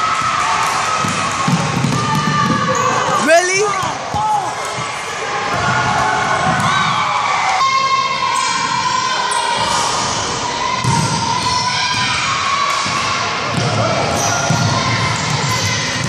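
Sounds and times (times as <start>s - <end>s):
voices echoing in a hall: 0.0s - 16.0s
basketball bouncing on hardwood floor: 1.0s - 2.8s.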